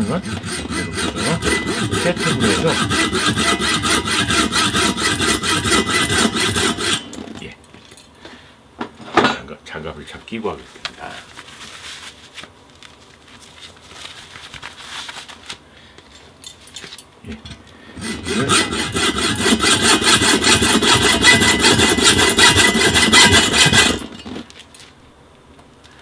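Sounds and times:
hacksaw cutting metal tube: 0:00.0 - 0:07.4, 0:18.0 - 0:24.5.

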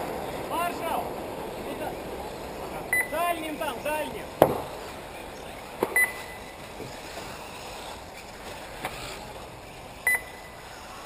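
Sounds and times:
short high electronic beeps: 0:10.1 - 0:10.6.

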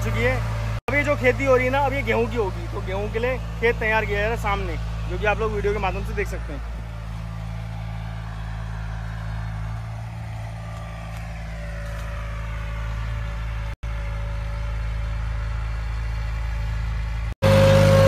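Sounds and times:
tractor engine humming: 0:00.0 - 0:18.0
falling whine: 0:06.8 - 0:18.0.

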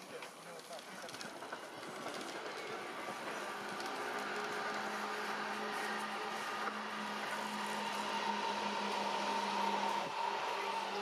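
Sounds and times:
background noise: 0:00.0 - 0:11.0
low engine hum: 0:02.4 - 0:11.0.

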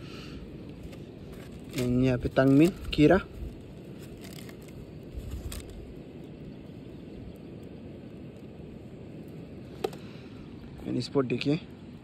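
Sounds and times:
low background rumble: 0:00.0 - 0:12.0
hand handling plastic bottle: 0:00.7 - 0:05.8.

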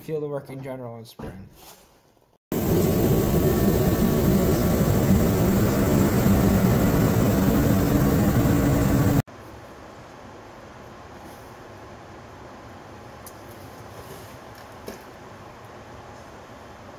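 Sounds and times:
forced-air heater roaring: 0:02.5 - 0:09.3.

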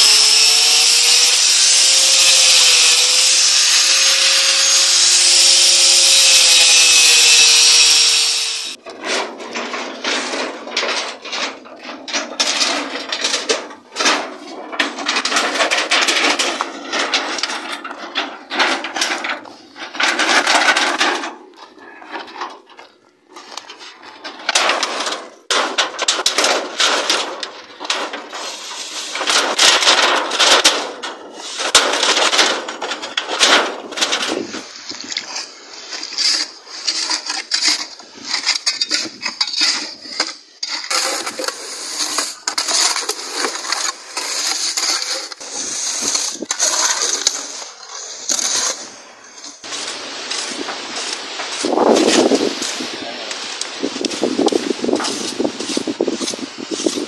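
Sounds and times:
angle grinder cutting steel: 0:00.0 - 0:08.8
scraping and knocking: 0:08.9 - 0:57.0.

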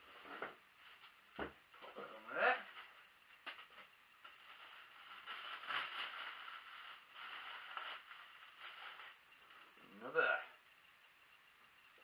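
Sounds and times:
plastic wrap rustling: 0:02.6 - 0:09.7.

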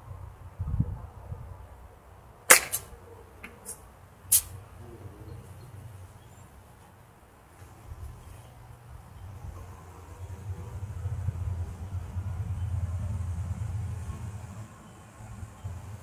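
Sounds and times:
wind rumble on microphone: 0:00.0 - 0:01.9, 0:07.7 - 0:16.0
golf club striking ball: 0:02.5 - 0:03.8.

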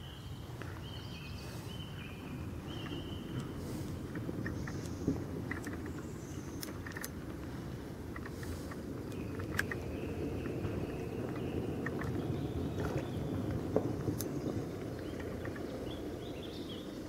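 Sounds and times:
steady low rumble: 0:00.0 - 0:17.0
faint clicks: 0:02.8 - 0:16.0.

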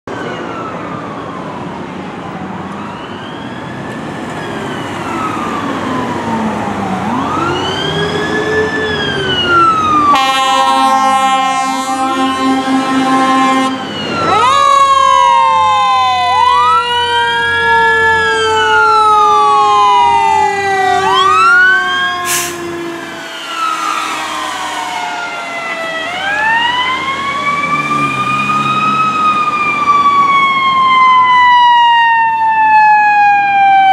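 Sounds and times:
fire truck sirens wailing: 0:00.1 - 0:33.9
air horn blast: 0:10.1 - 0:13.8, 0:22.1 - 0:26.7.

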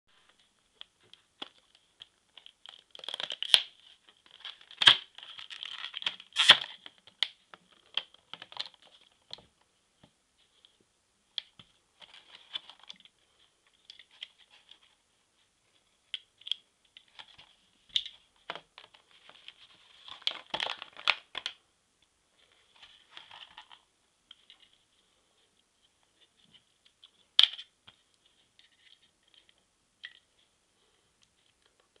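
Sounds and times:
plastic packaging crinkling and tearing: 0:02.3 - 0:09.2, 0:19.9 - 0:21.6.

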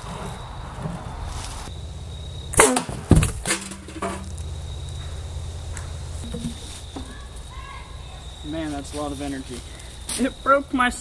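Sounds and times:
steady low hum: 0:00.6 - 0:08.6
metal paint can clanks: 0:02.6 - 0:04.4.

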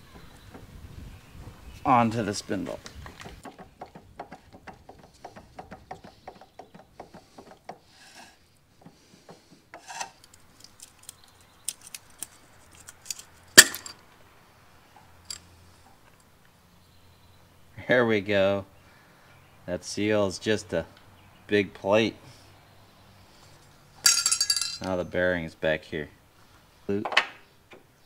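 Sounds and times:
small metal parts clicking: 0:09.9 - 0:14.0, 0:15.2 - 0:15.5.

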